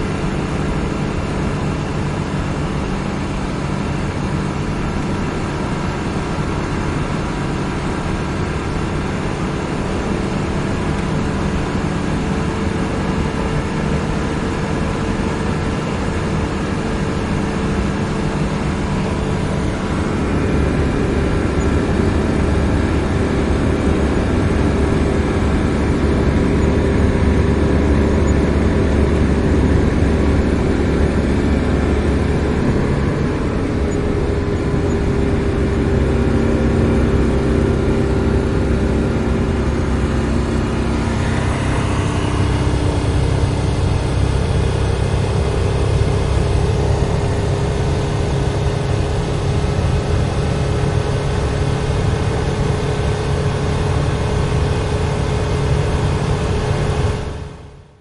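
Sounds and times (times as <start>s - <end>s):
car engine running: 0.0s - 58.0s
brief rising whine: 36.7s - 48.6s.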